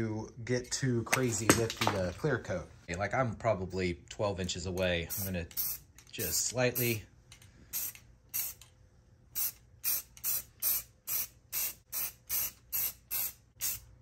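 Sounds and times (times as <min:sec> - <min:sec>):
spray can hissing in bursts: 0:07.7 - 0:08.6, 0:09.4 - 0:13.9.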